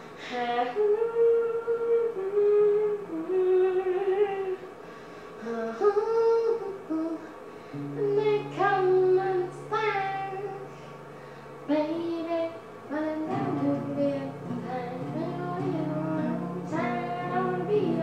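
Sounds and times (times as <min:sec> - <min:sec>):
boy singing: 0:05.4 - 0:10.8, 0:11.7 - 0:18.0
classical guitar: 0:07.7 - 0:10.7, 0:13.2 - 0:18.0.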